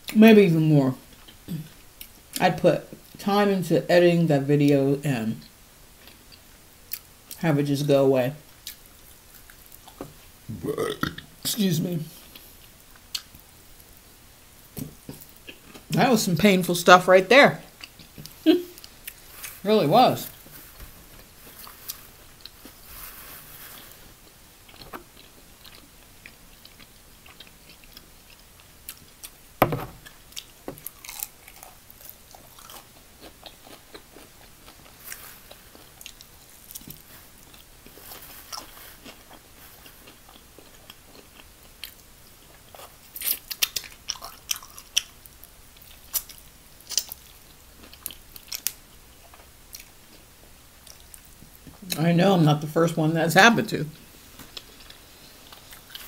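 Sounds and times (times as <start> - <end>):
biting and chewing fried chicken: 23.5 - 51.8.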